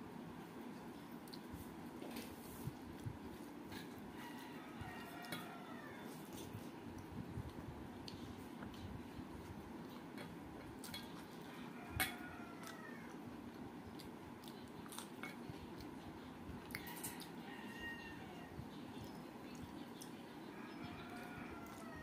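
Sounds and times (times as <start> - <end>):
steady low hum: 0.0 - 22.0
chewing and mouth smacks: 1.1 - 1.6, 6.3 - 8.9, 9.5 - 17.4.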